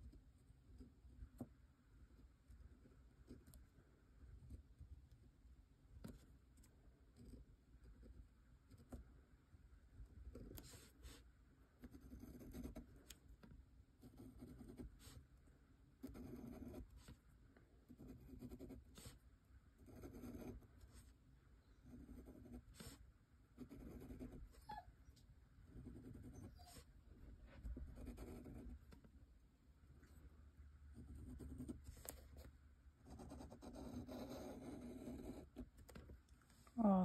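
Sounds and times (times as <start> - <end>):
nib scratching on paper: 10.3 - 15.3, 16.0 - 17.2, 17.9 - 21.2, 23.6 - 24.6, 25.6 - 26.9, 27.5 - 29.1, 30.9 - 36.2.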